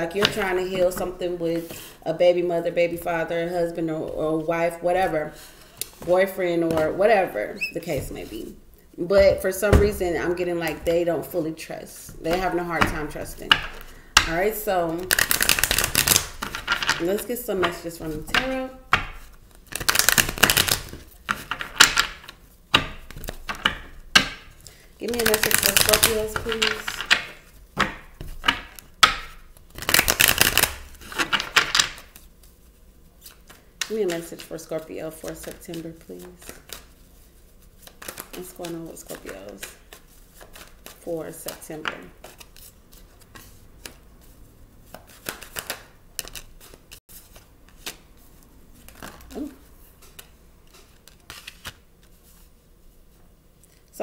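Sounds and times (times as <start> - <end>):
cards being shuffled: 12.2 - 32.6, 33.2 - 52.5
cards slapping on a wooden table: 44.9 - 46.8.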